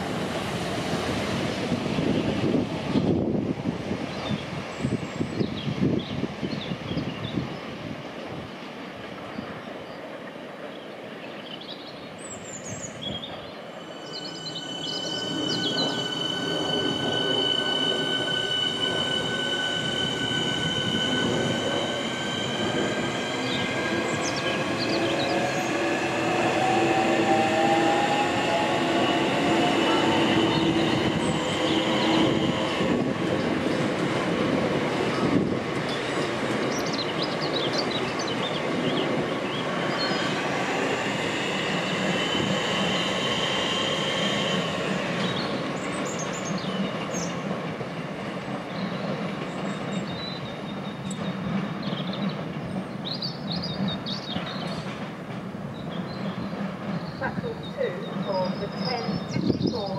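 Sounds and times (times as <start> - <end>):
train wheels squealing: 12.4 - 33.8, 35.1 - 47.5, 48.6 - 55.0.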